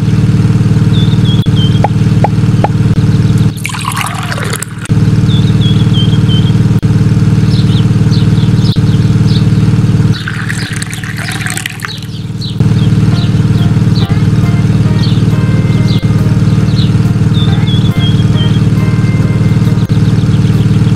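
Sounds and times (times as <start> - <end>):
electric toy motor humming: 3.6 - 4.9, 10.2 - 12.1.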